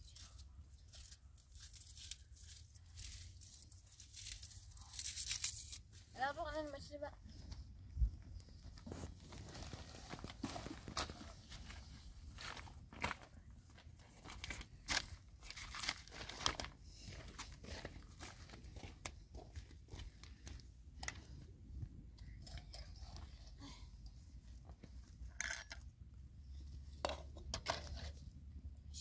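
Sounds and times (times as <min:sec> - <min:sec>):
rustling and crunching: 0:00.0 - 0:06.2, 0:08.4 - 0:23.3.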